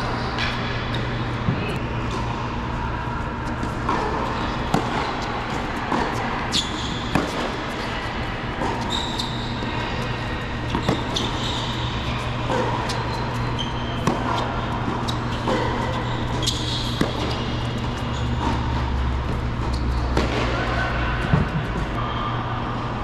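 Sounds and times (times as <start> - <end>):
steady low hum: 0.0 - 23.0
racket strikes and ball bounces: 3.5 - 8.9, 10.7 - 21.8
sneakers squeaking on court: 3.8 - 20.5.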